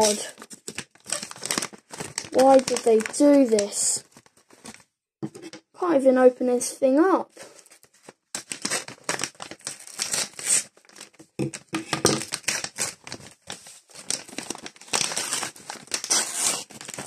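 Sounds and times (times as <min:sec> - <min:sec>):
plastic packaging crinkling and tearing: 0:00.0 - 0:04.8, 0:07.4 - 0:17.0.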